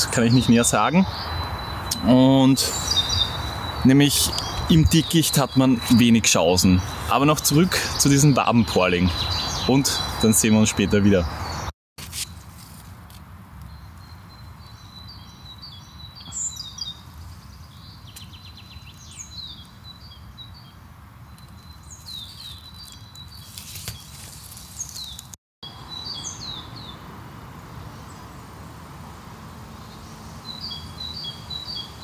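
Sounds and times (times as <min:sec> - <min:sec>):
songbirds chirping: 0:00.0 - 0:11.7, 0:13.4 - 0:32.0.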